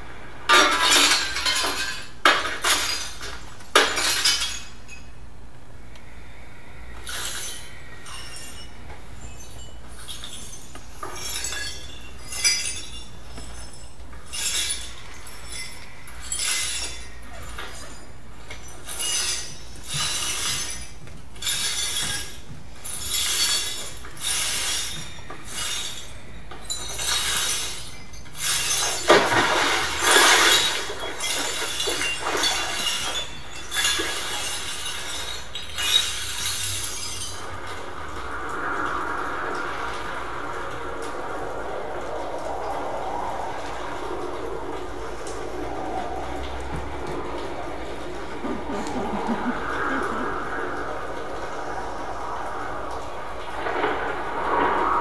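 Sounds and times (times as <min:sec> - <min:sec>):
glassy clinking and rattling: 0:00.5 - 0:05.2, 0:07.1 - 0:38.3.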